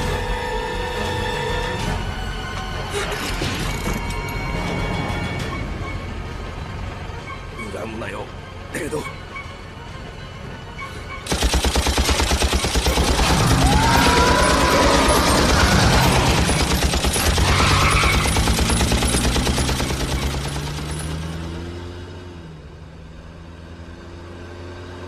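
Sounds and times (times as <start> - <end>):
rapid automatic gunfire: 11.3 - 21.4.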